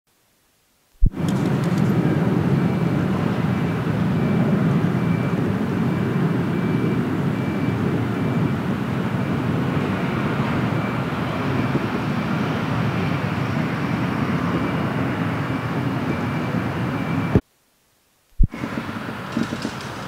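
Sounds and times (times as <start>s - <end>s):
distant engine rumble: 18.4s - 20.0s.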